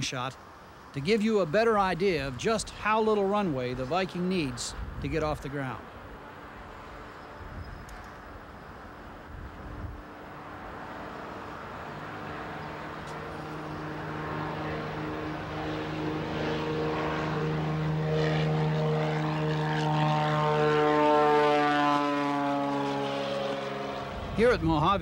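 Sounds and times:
propeller plane taking off: 5.7s - 25.0s.

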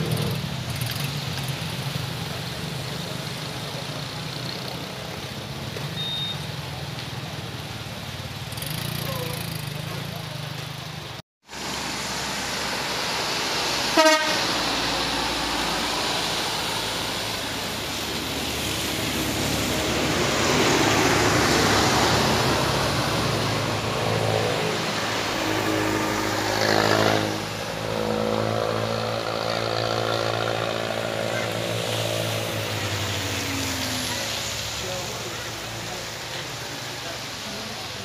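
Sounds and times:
traffic passing on wet road: 0.0s - 38.0s
short horn toot: 13.9s - 14.6s.

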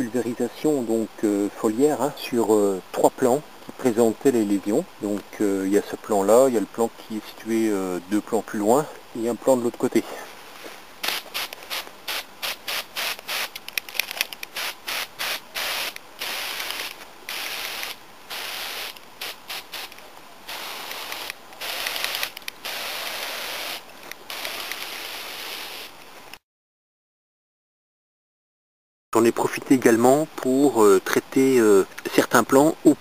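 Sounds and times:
hand sprayer hissing: 11.0s - 13.7s, 14.4s - 25.9s.

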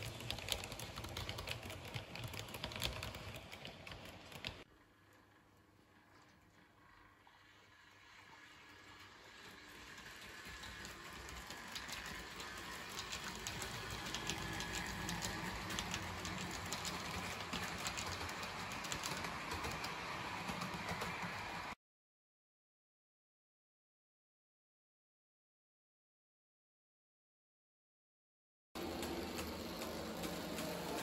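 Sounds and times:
model train running on track: 0.0s - 4.6s, 7.0s - 21.8s, 28.8s - 31.0s.

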